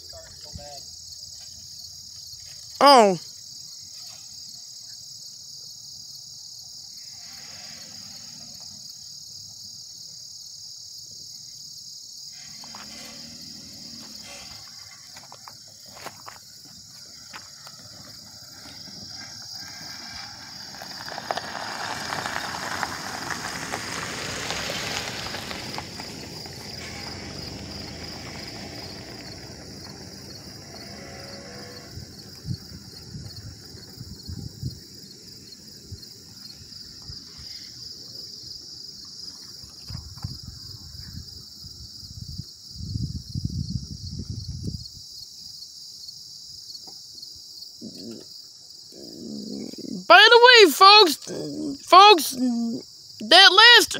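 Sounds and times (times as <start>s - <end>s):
crickets and insects chirping: 0.0s - 53.9s
vehicle driving on gravel: 12.4s - 41.6s.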